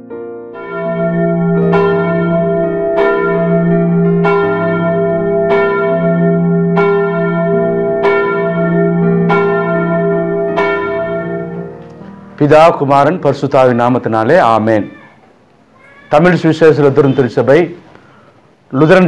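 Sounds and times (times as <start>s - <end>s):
held low chord: 0.0s - 13.4s
bell tolling: 0.6s - 12.8s.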